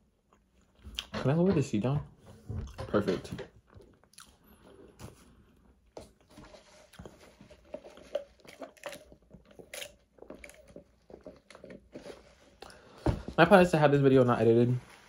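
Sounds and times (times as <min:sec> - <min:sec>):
person chewing food: 0:03.6 - 0:13.0.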